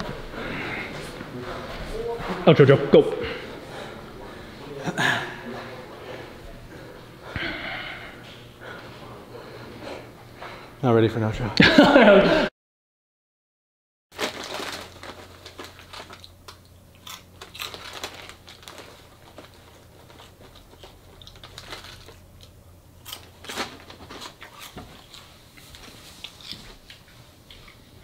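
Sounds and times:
chip bag crinkling: 14.2 - 26.6
chips crunching: 14.2 - 27.1.

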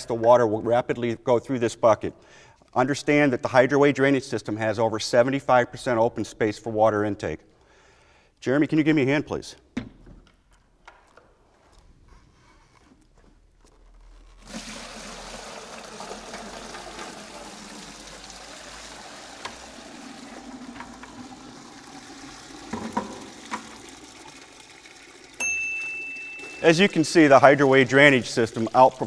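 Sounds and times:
water splashing into container: 14.3 - 25.4, 26.2 - 29.0.

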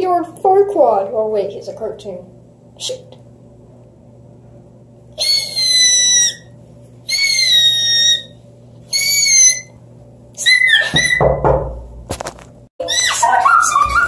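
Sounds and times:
high-pitched whistle-like calls: 5.2 - 6.5, 7.1 - 9.8.

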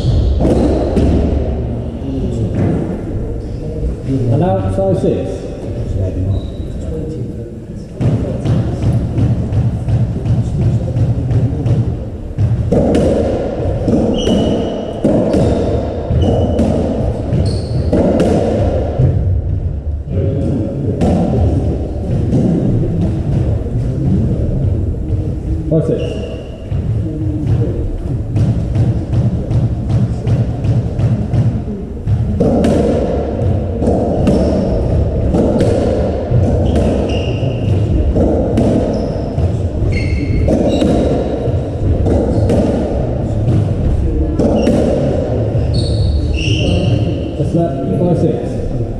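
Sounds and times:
racquetball hits and bounces: 0.0 - 1.6, 2.5 - 3.2, 8.0 - 19.7, 20.9 - 25.4, 26.0 - 47.4
shoes squeaking on wooden floor: 13.8 - 18.2, 33.8 - 35.8, 36.4 - 38.0, 38.7 - 41.6, 45.6 - 47.2.

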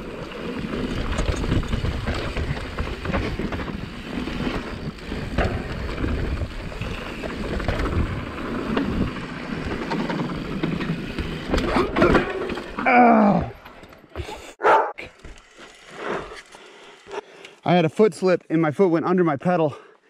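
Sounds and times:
wind buffeting camera: 0.0 - 12.0
bike rattling clacks: 0.0 - 12.9
tyres rumbling on dirt: 0.0 - 13.8.

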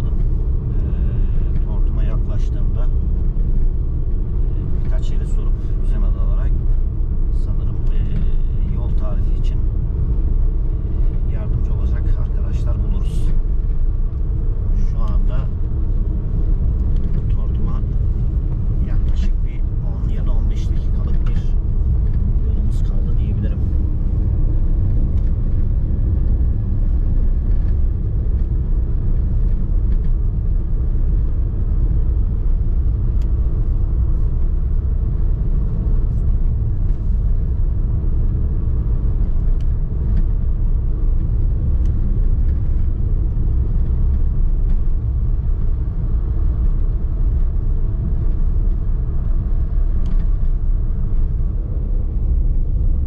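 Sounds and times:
car road and engine rumble: 0.0 - 53.0.

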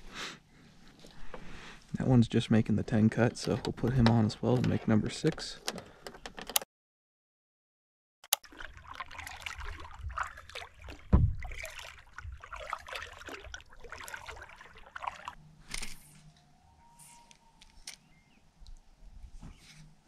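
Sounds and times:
paddle splashing in water: 8.4 - 15.4
heavy low thump: 11.1 - 11.5.

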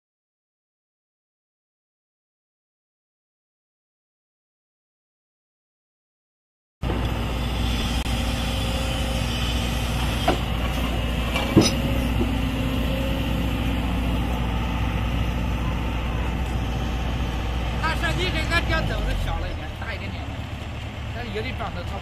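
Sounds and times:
sharp metallic knocks: 11.3 - 12.4.

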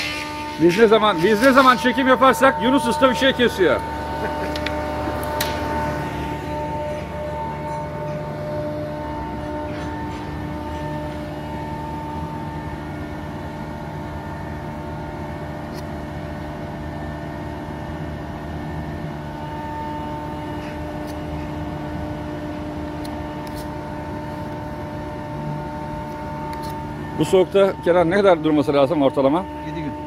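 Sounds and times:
machine drone: 0.0 - 30.0.

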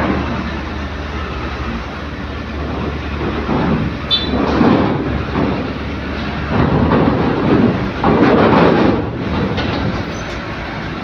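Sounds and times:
truck engine running: 0.0 - 11.0
metal ramp clattering: 2.5 - 10.6.

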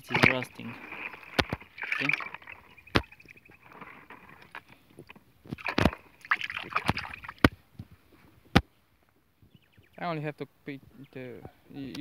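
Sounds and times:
water sloshing in a bucket: 0.0 - 7.7
sharp knocks: 2.9 - 3.3.

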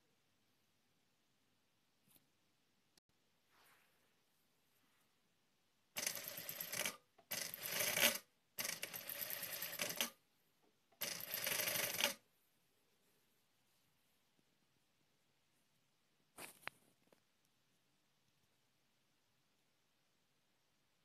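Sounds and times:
sewing machine stitching: 6.0 - 10.2, 11.0 - 12.2.

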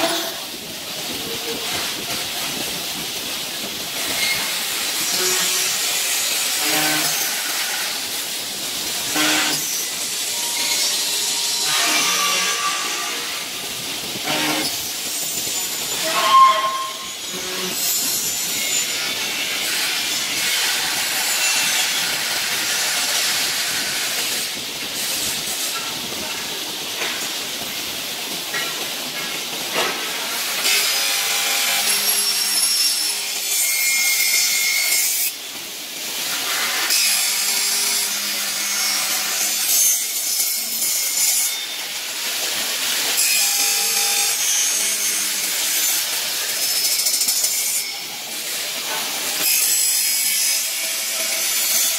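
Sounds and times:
saw blade cutting aluminium hiss: 0.0 - 27.6, 28.2 - 51.9.

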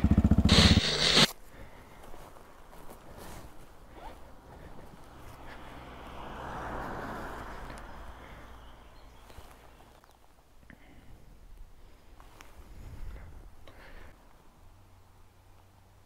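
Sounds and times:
rustling of riding gear: 0.2 - 14.6
van passing on a road: 2.6 - 10.2.

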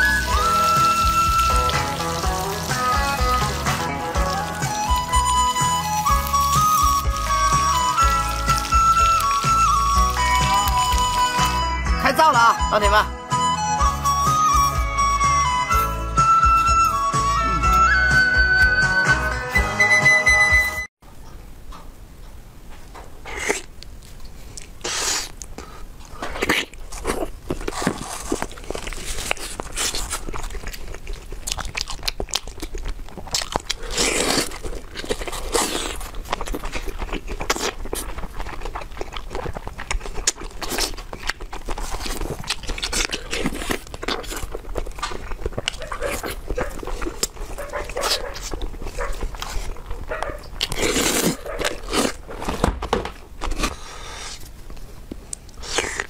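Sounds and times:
person chewing and smacking: 0.0 - 11.6, 23.2 - 56.0
person slurping food: 24.6 - 30.8, 50.6 - 52.4, 53.4 - 54.5, 55.6 - 56.0.

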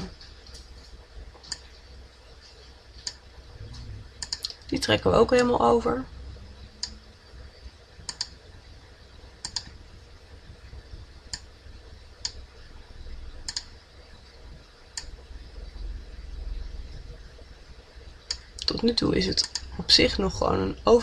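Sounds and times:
faint low hum: 0.0 - 21.0
computer mouse clicks: 4.2 - 4.6, 8.1 - 8.4, 9.4 - 9.7, 13.4 - 13.7, 19.4 - 19.7.

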